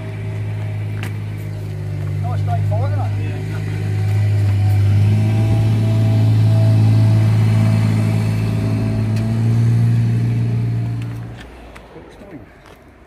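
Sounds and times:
engine running steadily: 0.0 - 11.9.

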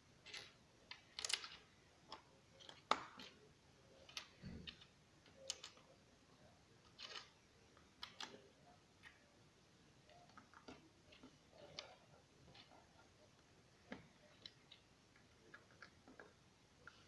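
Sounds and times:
plastic bricks clicking: 0.2 - 3.4, 4.0 - 5.9, 6.9 - 8.4.

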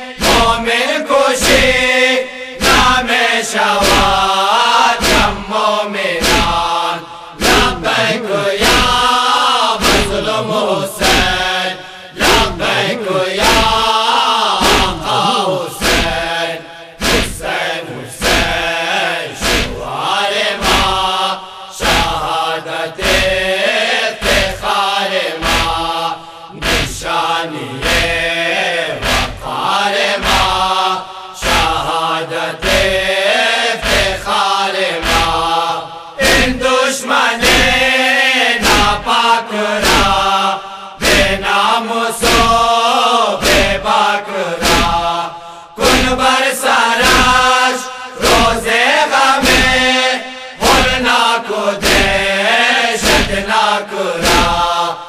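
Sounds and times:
voices chanting a lament: 0.0 - 55.0
heavy regular beat: 6.2 - 9.1, 12.2 - 14.0, 14.6 - 16.4, 17.0 - 17.6, 20.6 - 21.2, 21.8 - 22.4, 23.0 - 23.5, 25.4 - 28.4, 29.0 - 32.0, 32.6 - 33.0, 33.8 - 34.3, 35.0 - 36.6.

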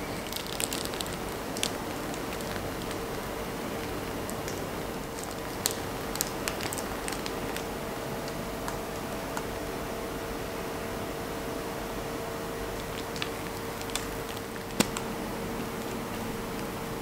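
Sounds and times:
cream squishing from piping bag: 0.0 - 9.0, 12.7 - 17.0
faint hum: 0.0 - 17.0.

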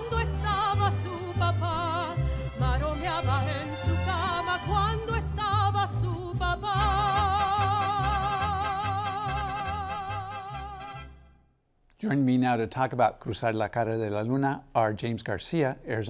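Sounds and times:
operatic singing with vibrato: 0.0 - 11.3
mariachi band playing: 0.0 - 11.5.

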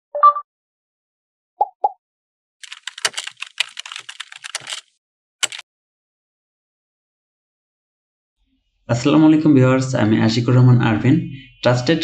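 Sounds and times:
keyboard typing: 2.6 - 5.6.

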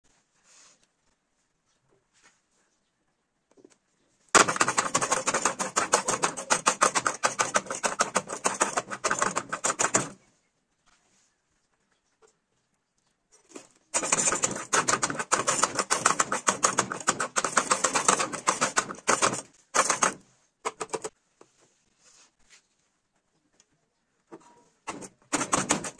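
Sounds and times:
plastic chopper clacking: 4.4 - 10.2, 14.0 - 21.1.

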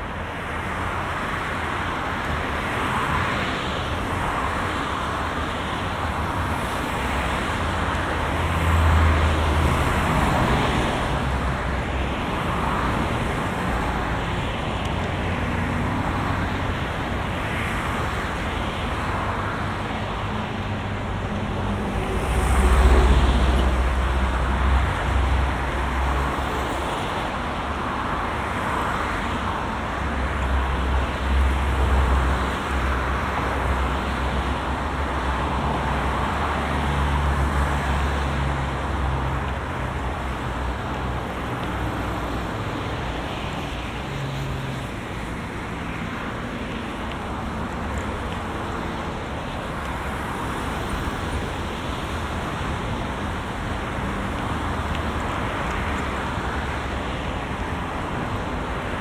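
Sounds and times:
cars passing: 0.0 - 59.0.

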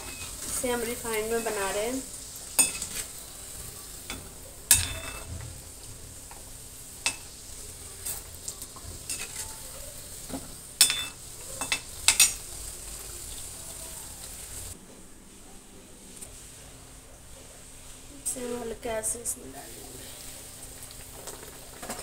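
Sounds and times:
food deep-frying sizzling: 0.0 - 14.8, 18.3 - 22.0
metal spoon clinking against pan: 2.6 - 3.0, 4.1 - 5.3, 7.0 - 7.3, 9.1 - 9.6, 10.8 - 12.4.

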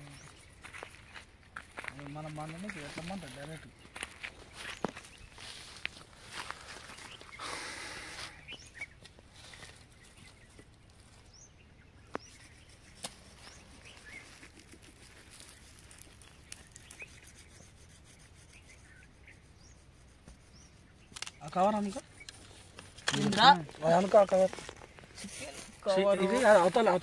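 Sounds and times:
dry sticks rustling: 0.0 - 11.3, 12.1 - 18.9, 19.8 - 27.0
faint bird chirps: 6.5 - 22.5.

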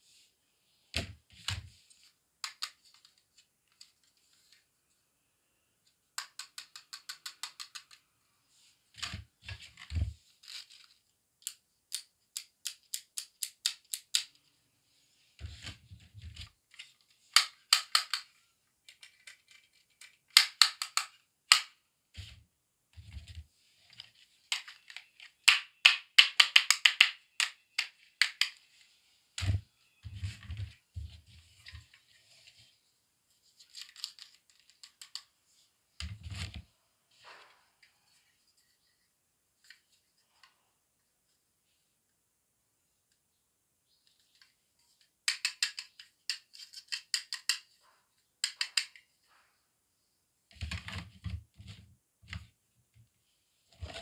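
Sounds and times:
plastic toys clicking and clattering: 2.4 - 3.2, 6.2 - 8.0, 11.4 - 14.4, 15.5 - 21.8, 24.5 - 28.6, 33.7 - 35.3, 44.3 - 47.8, 48.4 - 49.1.

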